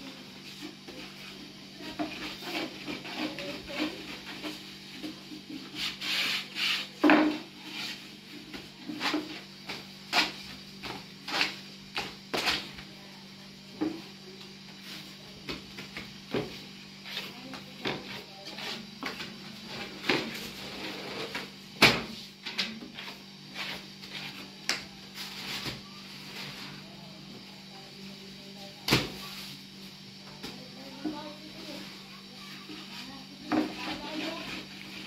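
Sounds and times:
rolling pin rolling dough: 0.0 - 12.9, 13.7 - 26.9, 30.3 - 35.0.

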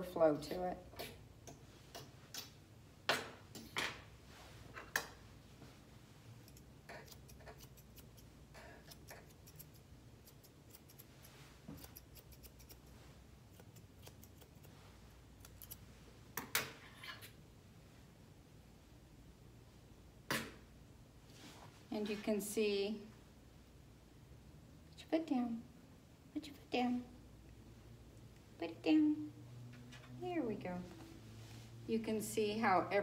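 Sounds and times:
scissors snipping dog fur: 6.4 - 14.8, 15.4 - 15.9.

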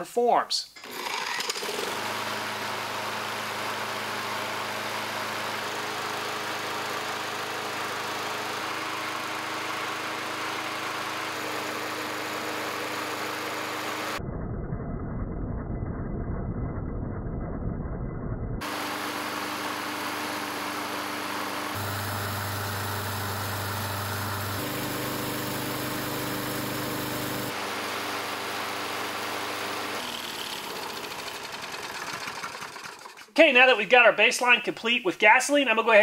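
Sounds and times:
small engine running: 0.8 - 14.2, 18.6 - 33.4.

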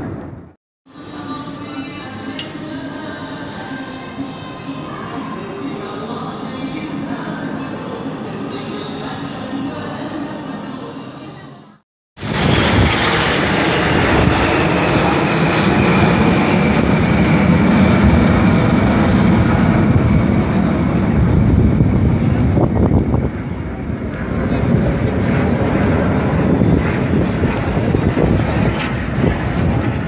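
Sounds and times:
jet aircraft roaring past: 12.2 - 30.0.

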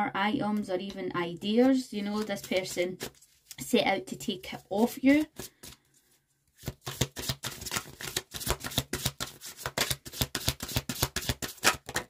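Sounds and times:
cards being shuffled: 1.6 - 3.7, 4.5 - 12.0.

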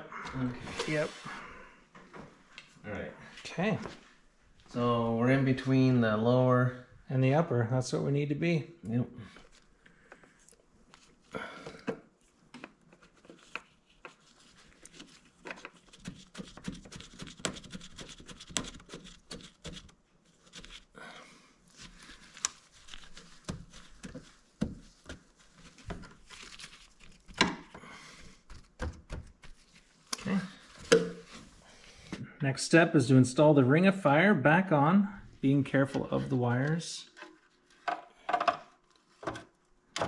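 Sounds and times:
gloves and towel rustling: 12.1 - 21.0, 21.6 - 27.4, 28.0 - 32.2.

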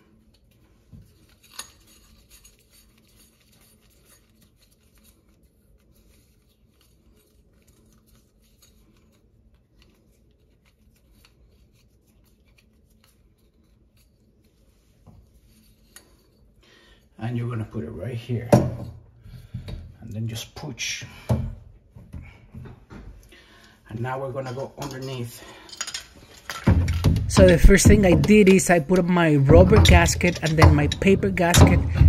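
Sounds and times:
soft rubbing of putty: 0.4 - 16.6.

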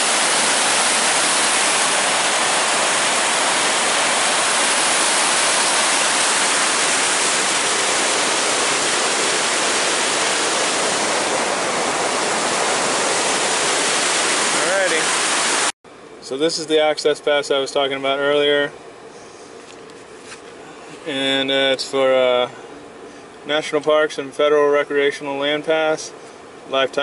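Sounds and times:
loud rush of whitewater: 0.0 - 15.7.

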